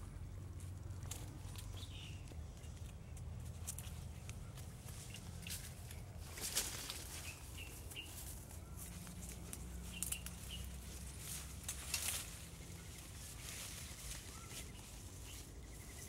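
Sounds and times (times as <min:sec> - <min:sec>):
branches rustling: 0:00.0 - 0:16.0
bird chirps: 0:09.8 - 0:10.9, 0:12.8 - 0:16.0.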